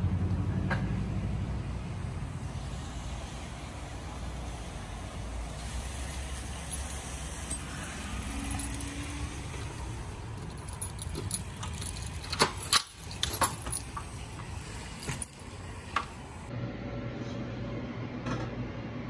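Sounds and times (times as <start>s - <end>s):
low background hum: 5.5s - 19.0s
keys jangling: 5.6s - 15.9s.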